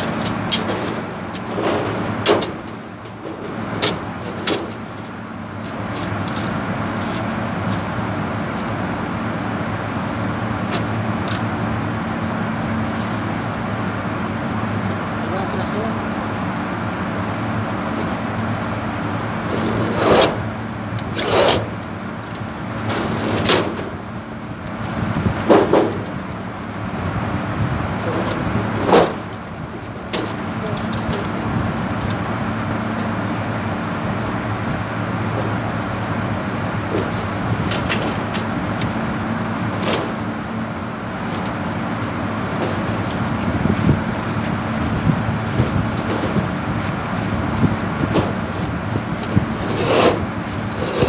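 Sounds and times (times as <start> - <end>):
metal sheet scraping: 0.0 - 5.1, 19.4 - 20.4, 21.1 - 21.8, 22.8 - 24.0, 44.9 - 51.0
low mechanical hum: 0.0 - 51.0.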